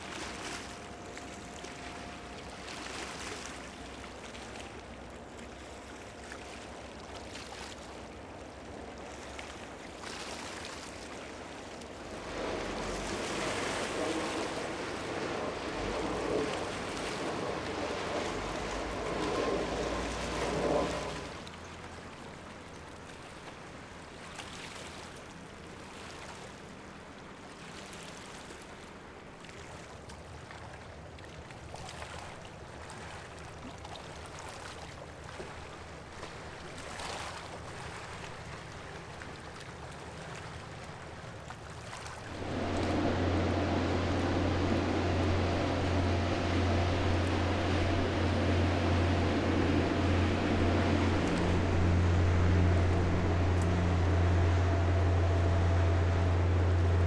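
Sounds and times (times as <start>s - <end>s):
river water washing: 0.0s - 57.0s
wind noise: 42.3s - 57.0s.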